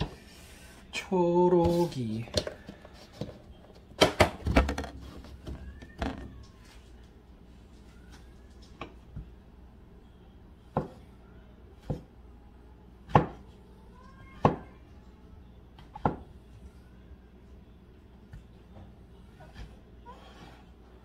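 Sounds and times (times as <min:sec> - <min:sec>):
knife chopping on a cutting board: 0:10.7 - 0:11.0, 0:13.1 - 0:13.4.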